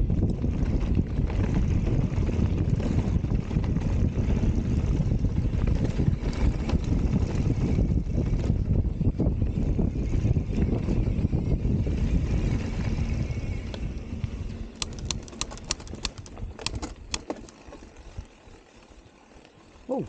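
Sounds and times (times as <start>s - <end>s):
wind buffeting microphone: 0.0s - 18.6s.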